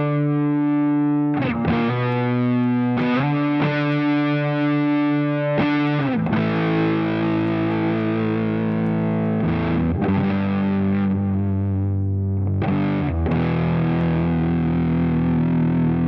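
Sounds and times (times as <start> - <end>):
distorted electric guitar chords: 0.0 - 16.0.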